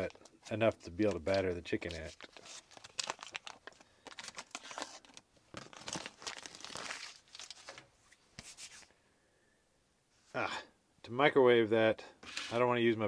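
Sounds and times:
paper wrapper crinkling and tearing: 0.0s - 7.8s.

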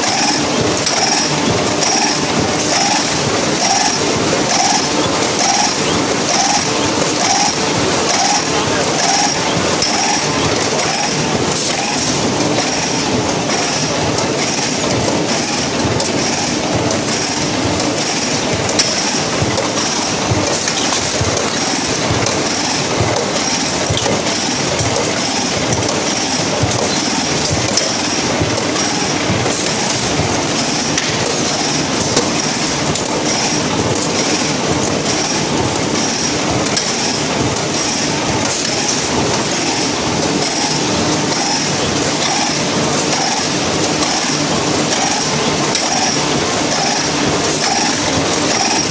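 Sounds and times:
machine rapid mechanical clatter: 0.0s - 48.9s.

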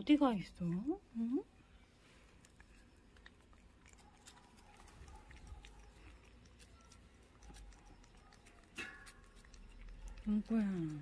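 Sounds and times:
cat tongue licking: 2.4s - 11.0s.

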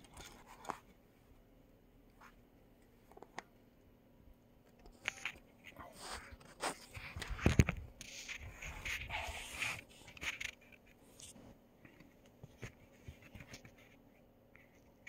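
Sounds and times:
scraping and rubbing on microphone: 5.7s - 11.5s.

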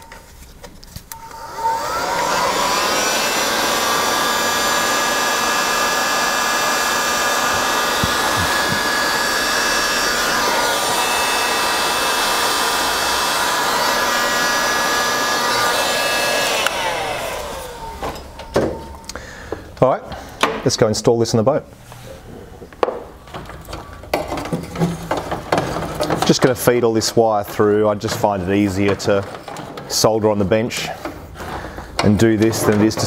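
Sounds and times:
heat gun fan whine: 1.0s - 20.3s.

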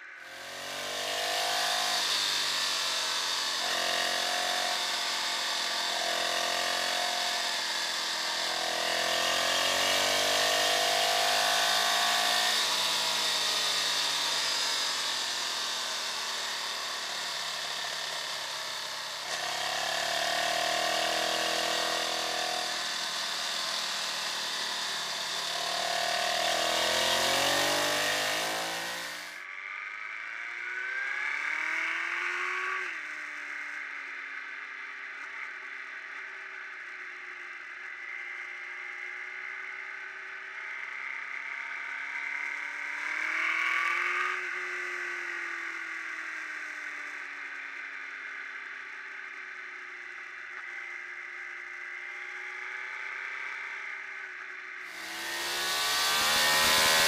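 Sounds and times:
motorcycle engine revving: 0.0s - 30.0s, 53.0s - 57.0s.

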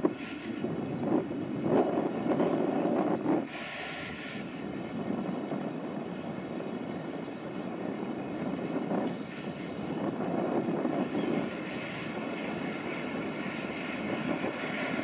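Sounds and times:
wind gusting on microphone: 0.0s - 15.0s
rush of spray: 1.5s - 6.1s.

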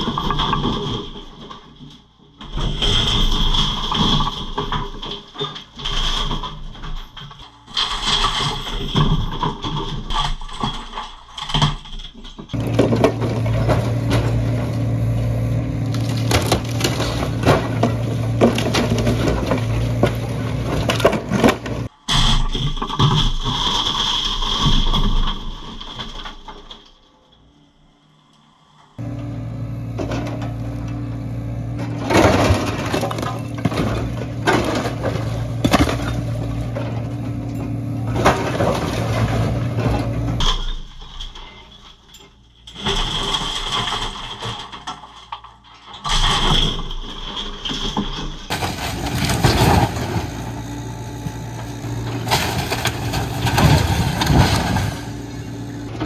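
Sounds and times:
wood splintering and debris crashing: 0.0s - 27.0s, 29.0s - 42.0s, 42.7s - 56.0s
excavator engine running: 12.5s - 22.0s, 27.6s - 40.9s, 48.4s - 56.0s.

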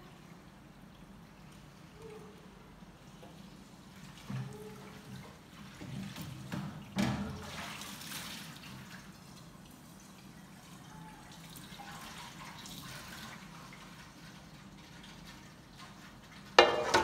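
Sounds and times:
water splashing in metal basin: 5.6s - 9.1s, 16.4s - 17.0s
dish knocking against basin: 16.6s - 17.0s.

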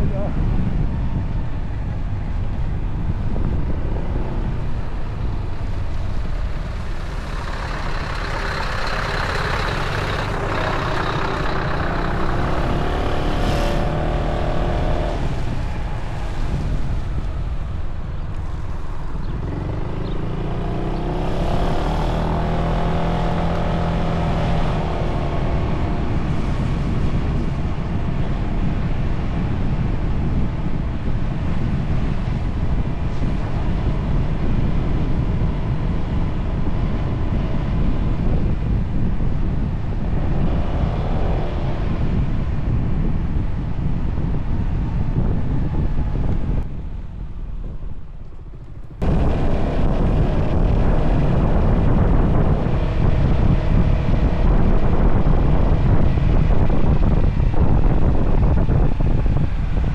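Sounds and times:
wind buffeting microphone: 0.0s - 59.9s
scooter engine: 3.6s - 15.6s.

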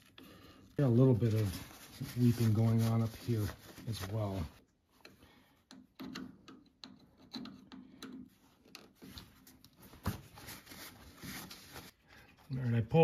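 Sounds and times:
screwdriver scraping and clicking: 5.0s - 9.8s.

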